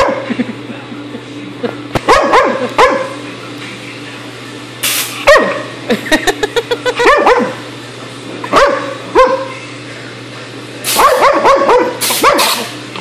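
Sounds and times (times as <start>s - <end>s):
puppy barking: 0.0s - 0.3s, 2.0s - 3.2s, 5.2s - 5.7s, 7.0s - 7.6s, 8.5s - 9.6s, 11.0s - 12.6s
air hose hiss: 4.8s - 5.2s, 10.9s - 11.1s, 12.0s - 12.7s.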